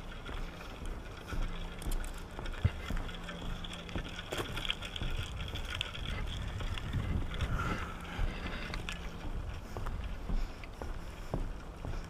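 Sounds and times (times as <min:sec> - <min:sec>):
footsteps on wooden boardwalk: 0:00.0 - 0:12.0
wind on microphone: 0:04.5 - 0:10.4.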